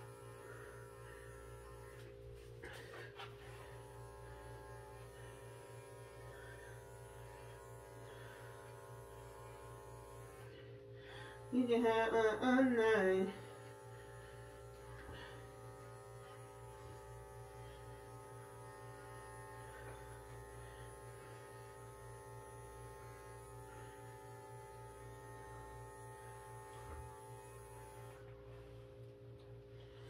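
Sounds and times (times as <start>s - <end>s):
faint electrical hum: 0.0s - 30.0s.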